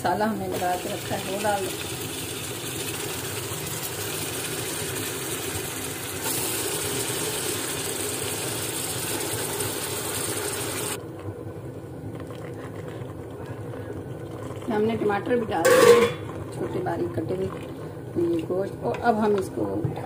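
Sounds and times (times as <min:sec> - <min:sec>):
meat sizzling in oil: 0:00.5 - 0:11.0.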